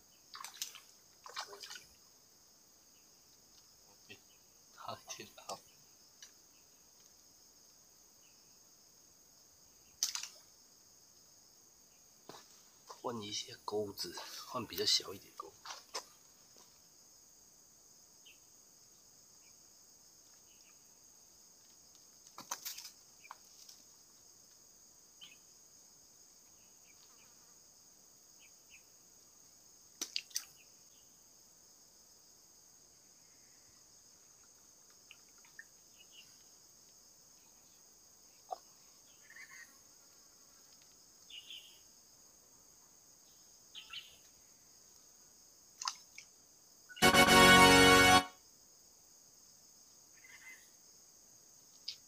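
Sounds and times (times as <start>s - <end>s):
high-pitched insect chorus: 0.0s - 52.0s
short high chirps: 47.0s - 48.3s.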